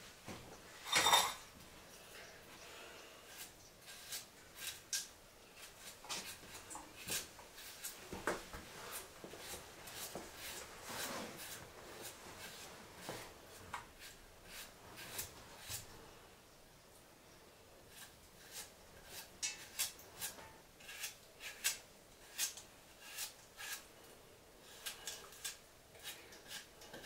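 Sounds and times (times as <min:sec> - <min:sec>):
knife scraping vegetable skin: 0:03.3 - 0:08.0, 0:08.9 - 0:13.2, 0:13.9 - 0:15.9, 0:17.9 - 0:23.9, 0:24.6 - 0:27.0.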